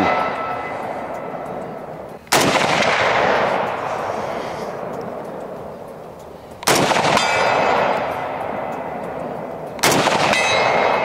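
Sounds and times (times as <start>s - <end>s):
faint metallic ringing: 0.0s - 11.0s
rolling echo: 0.0s - 11.0s
rifle shots: 2.2s - 4.1s, 6.6s - 8.1s, 9.8s - 11.0s.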